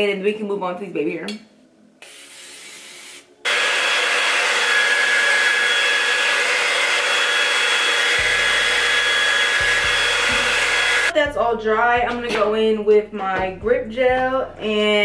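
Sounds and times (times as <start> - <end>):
hair dryer running: 3.4 - 11.1.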